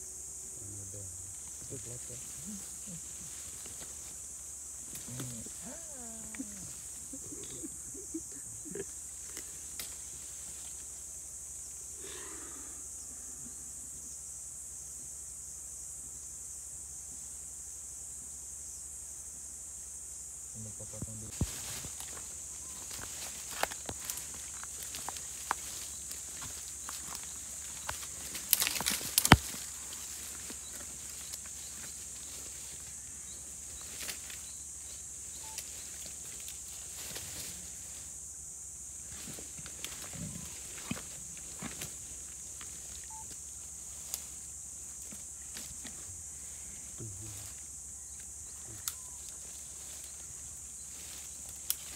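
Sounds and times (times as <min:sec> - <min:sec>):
faint scattered ticks: 0:00.0 - 0:51.9
high-pitched insect drone: 0:00.0 - 0:51.9
steady high-pitched hiss: 0:00.0 - 0:51.9
brush cracking and snapping: 0:09.3 - 0:10.0, 0:21.4 - 0:31.4, 0:51.5 - 0:51.9.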